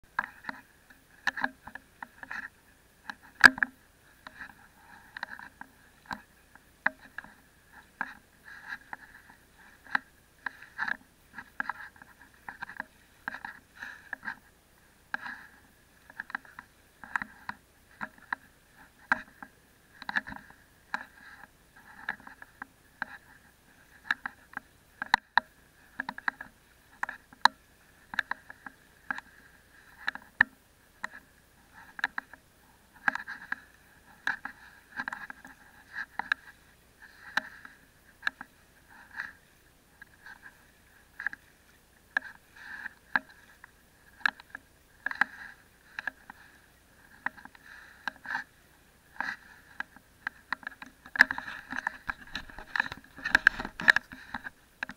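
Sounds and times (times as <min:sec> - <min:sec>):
sharp clicks and knocks: 0:00.1 - 0:14.4, 0:49.2 - 0:54.9
water splashing against camera: 0:00.1 - 0:54.9.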